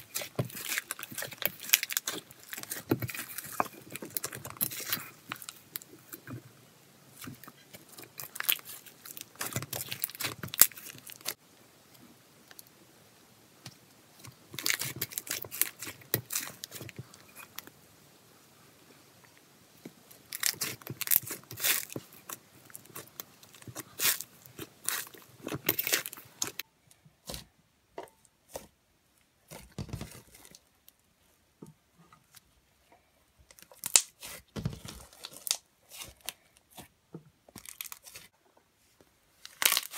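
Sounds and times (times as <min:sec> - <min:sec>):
foam bead slime crunching: 0:00.0 - 0:06.3, 0:07.1 - 0:11.4, 0:14.2 - 0:17.6, 0:20.1 - 0:26.6, 0:33.6 - 0:36.9, 0:37.5 - 0:38.3, 0:39.4 - 0:39.9.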